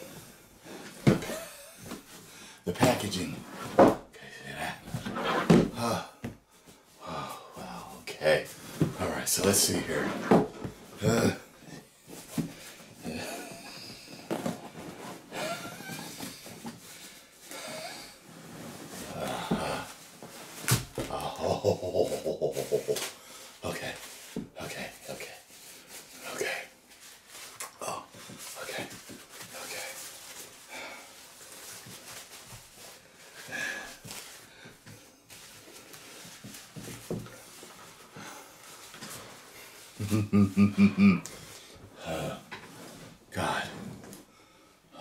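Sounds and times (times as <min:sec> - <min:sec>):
person breathing heavily: 0:05.8 - 0:08.9, 0:15.3 - 0:18.3, 0:19.0 - 0:20.0, 0:33.0 - 0:35.0, 0:38.1 - 0:42.5
plastic wrapping rustling: 0:18.1 - 0:40.7.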